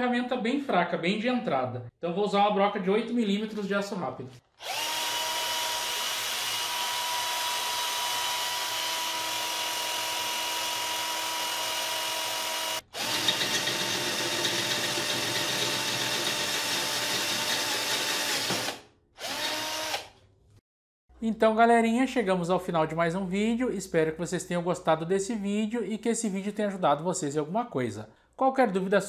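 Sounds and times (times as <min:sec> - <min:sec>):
cordless drill whining: 0:04.5 - 0:20.2.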